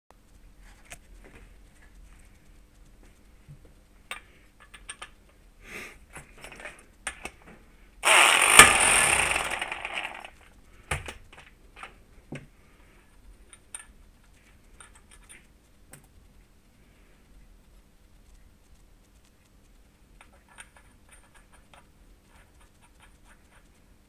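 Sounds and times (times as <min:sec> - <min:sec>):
impact wrench hammering: 0:08.0 - 0:10.3.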